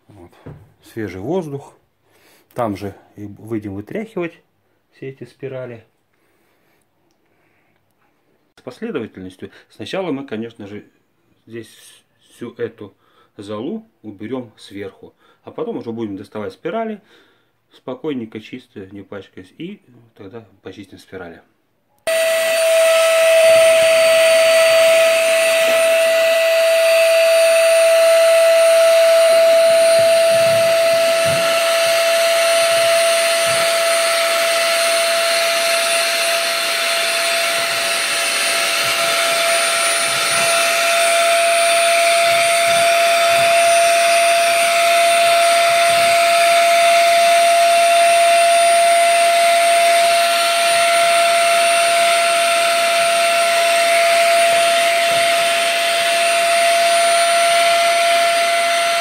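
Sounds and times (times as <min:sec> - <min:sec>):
vacuum cleaner whining: 0:22.1 - 0:59.0.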